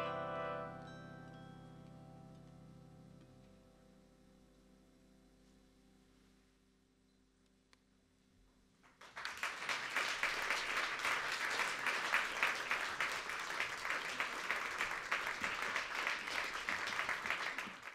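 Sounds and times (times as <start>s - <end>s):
audience applauding: 8.9s - 17.9s.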